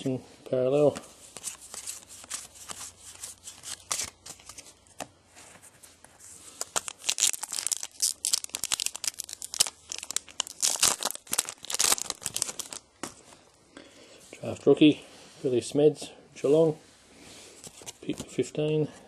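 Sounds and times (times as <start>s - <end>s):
cards being handled: 0.8s - 13.4s, 17.6s - 18.4s
card pack wrapper tearing: 1.4s - 4.6s, 6.5s - 12.8s.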